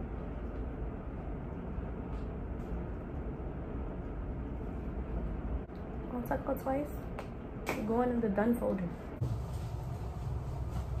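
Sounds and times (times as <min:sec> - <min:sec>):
low room rumble: 0:00.0 - 0:11.0.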